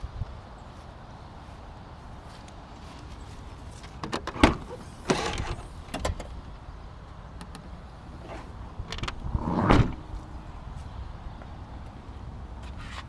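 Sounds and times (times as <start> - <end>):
tailgate shutting with thump: 4.0 - 6.4.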